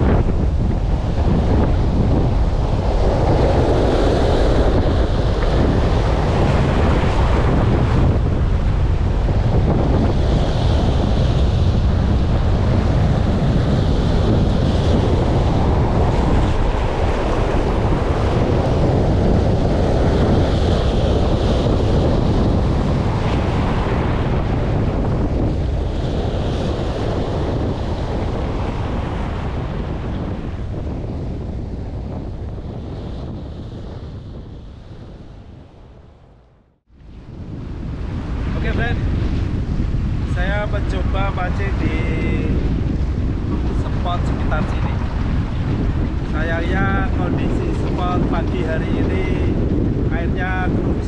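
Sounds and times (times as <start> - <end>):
surf breaking over rocks: 0.0 - 32.0
wind buffeting microphone: 0.0 - 51.0.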